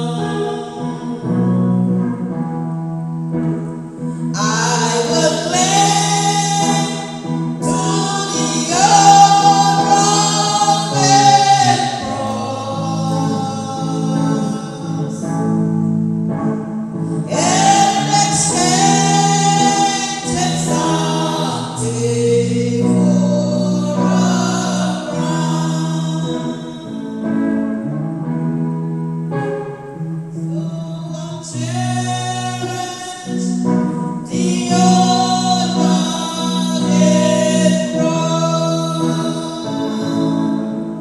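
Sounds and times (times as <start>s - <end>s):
woman singing gospel: 0.0s - 1.8s, 4.4s - 15.3s, 17.3s - 27.0s, 30.5s - 33.6s, 34.2s - 40.6s
sustained chords: 0.0s - 41.0s.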